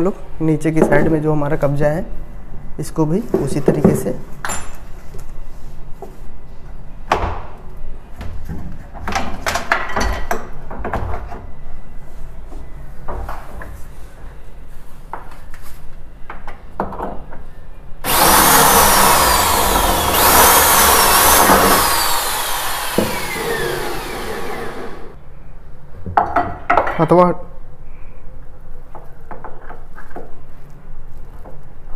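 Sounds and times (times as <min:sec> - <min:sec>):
power drill whining: 0:18.0 - 0:25.2.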